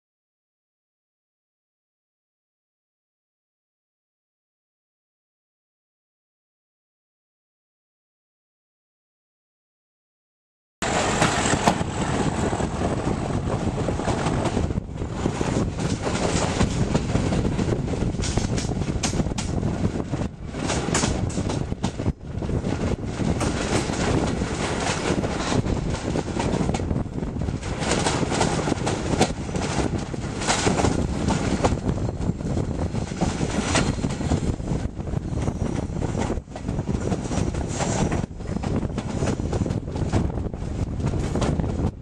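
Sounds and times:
train wheels rumbling over rails: 0:10.8 - 0:42.0
wind buffeting microphone: 0:10.8 - 0:42.0.

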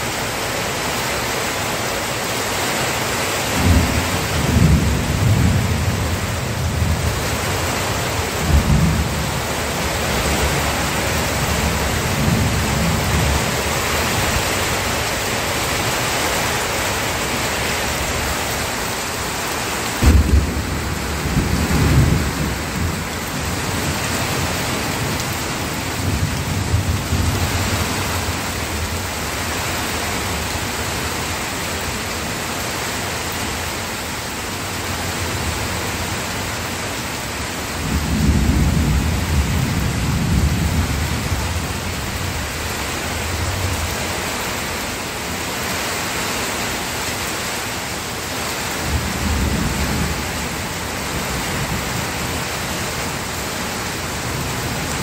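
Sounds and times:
steady rain: 0:00.0 - 0:55.0
thunder rumbling: 0:03.6 - 0:29.9.

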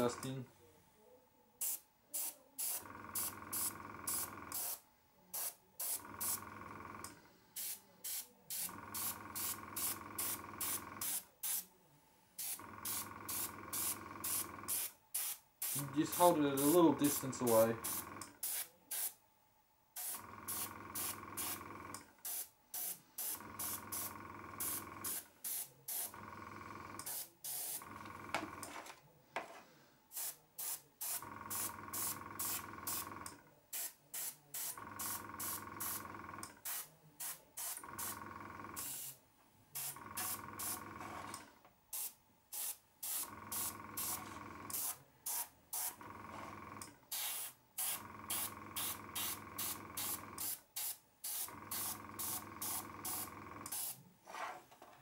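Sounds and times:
air compressor humming: 0:02.6 - 0:04.8, 0:05.4 - 0:11.6, 0:12.4 - 0:18.6, 0:20.0 - 0:28.8, 0:30.1 - 0:33.4, 0:34.6 - 0:39.1, 0:39.8 - 0:54.0
airbrush spraying hiss: 0:30.1 - 0:33.0, 0:42.0 - 0:46.0, 0:47.1 - 0:54.0.

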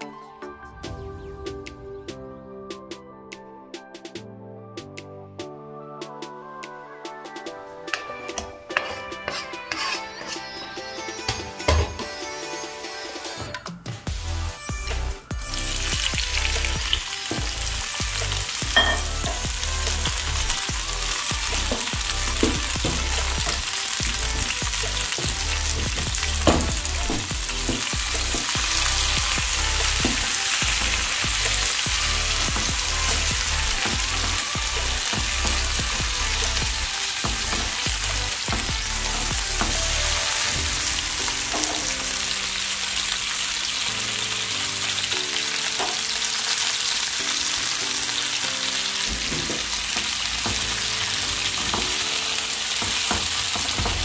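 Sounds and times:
tomatoes sizzling in oil: 0:08.7 - 0:10.5, 0:15.0 - 0:54.0.

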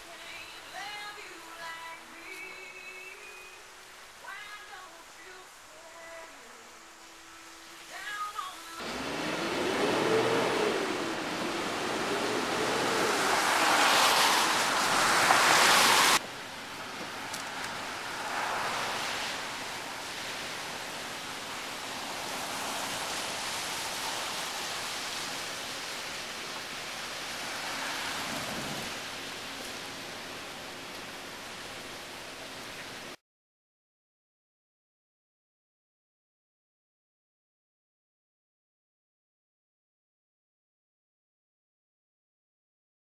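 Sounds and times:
soft even hiss: 0:00.0 - 0:08.8, 0:10.0 - 0:33.2
outdoor rushing noise: 0:08.8 - 0:32.1.

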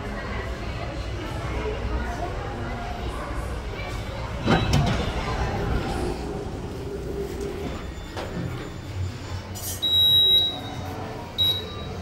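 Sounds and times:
elevator panel beeps: 0:09.8 - 0:10.8, 0:11.4 - 0:12.0.

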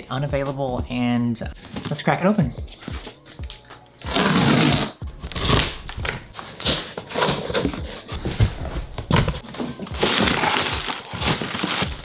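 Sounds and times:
knife slicing packing tape: 0:04.0 - 0:07.4, 0:09.9 - 0:12.0
cardboard scraping and rustling: 0:04.2 - 0:12.0.

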